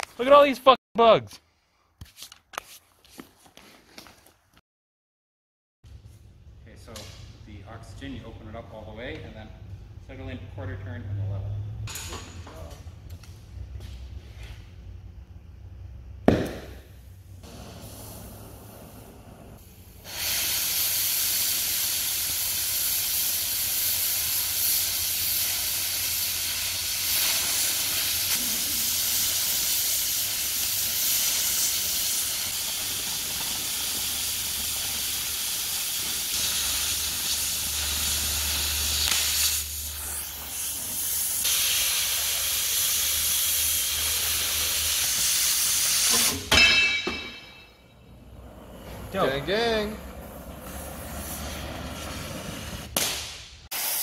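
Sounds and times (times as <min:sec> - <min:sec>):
cutting torch hissing: 0:17.4 - 0:46.5, 0:48.1 - 0:53.0, 0:53.7 - 0:54.0.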